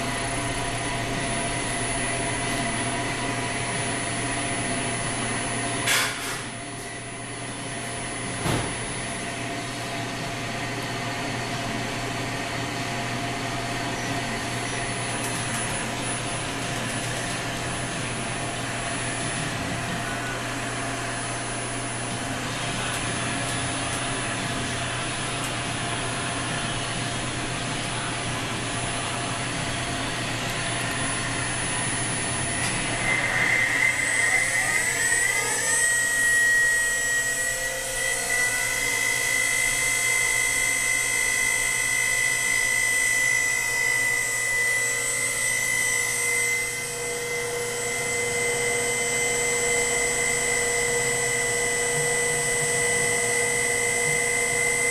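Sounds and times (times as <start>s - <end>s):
spindle high-pitched whine: 0.0s - 54.9s
grinding machine hiss: 13.6s - 54.9s.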